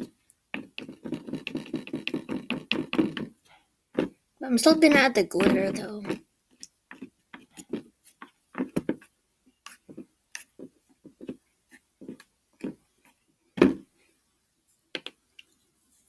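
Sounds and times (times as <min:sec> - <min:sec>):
slime squelching: 0:00.0 - 0:12.8.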